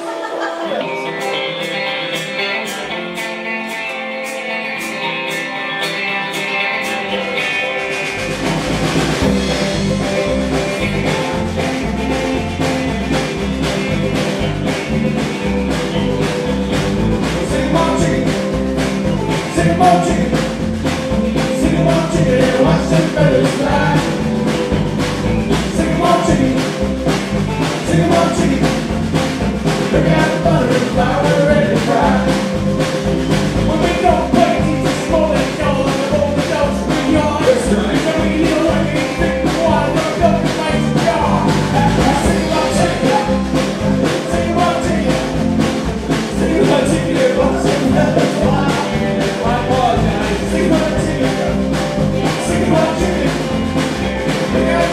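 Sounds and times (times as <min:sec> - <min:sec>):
person singing: 0:00.0 - 0:03.0, 0:17.0 - 0:24.8, 0:25.5 - 0:33.0, 0:33.6 - 0:54.9
bass guitar: 0:00.0 - 0:54.9
drum kit: 0:00.0 - 0:54.9
electric guitars: 0:00.0 - 0:54.9
high ticking beat: 0:07.8 - 0:54.9.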